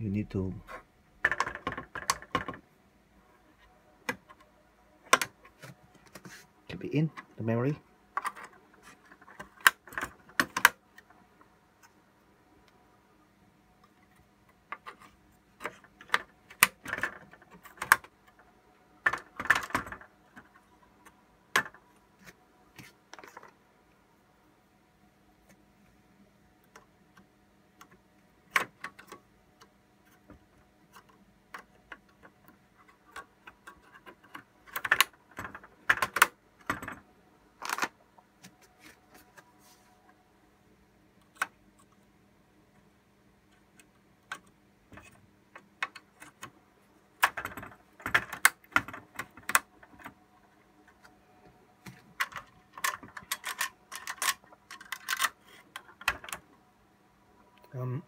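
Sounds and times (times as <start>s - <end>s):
plastic clicks of memory modules: 9.2s - 11.1s, 14.0s - 18.4s, 26.6s - 37.0s, 47.2s - 50.2s, 51.8s - 56.4s.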